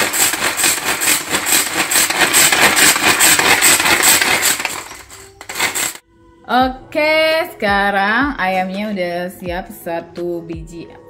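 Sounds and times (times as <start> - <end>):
herb chopper chopping rattle: 0.0 - 6.0.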